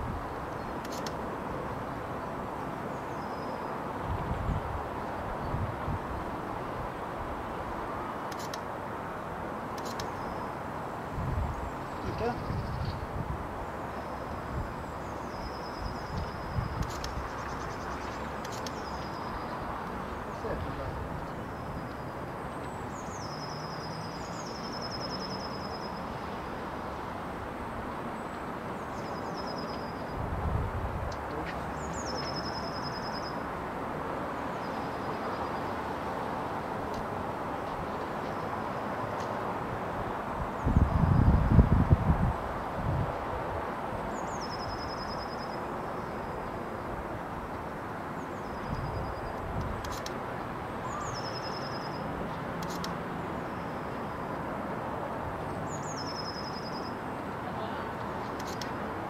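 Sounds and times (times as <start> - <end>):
outdoor background hiss: 0.0 - 59.0.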